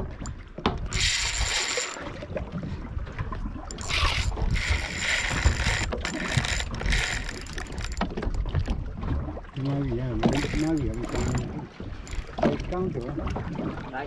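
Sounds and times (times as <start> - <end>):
fishing reel gears whirring: 0.0 - 2.2, 3.7 - 8.8, 10.2 - 12.6
low rumble of boat: 0.0 - 14.0.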